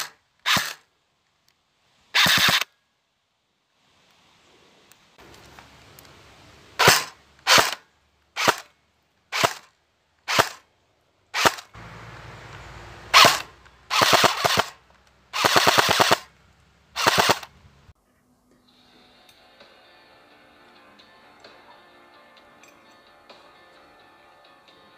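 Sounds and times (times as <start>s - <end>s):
airsoft gun shots: 2.2s - 2.7s, 6.8s - 7.8s, 8.4s - 8.7s, 9.3s - 9.7s, 10.3s - 10.6s, 13.1s - 14.8s, 15.4s - 16.3s, 17.0s - 17.5s.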